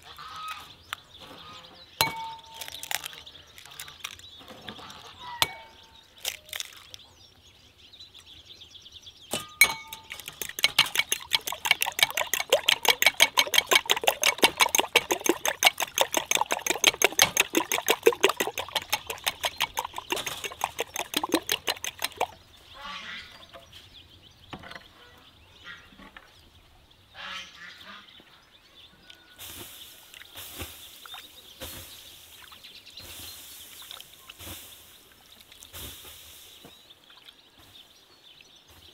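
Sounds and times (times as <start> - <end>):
eggs beaten in glass bowl: 2.0 - 4.2, 9.3 - 22.4
egg tapped on glass bowl: 9.6 - 22.3.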